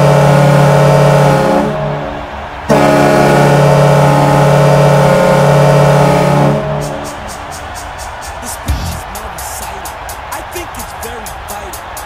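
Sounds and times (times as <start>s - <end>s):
hockey goal horn blast: 0.0s - 9.4s.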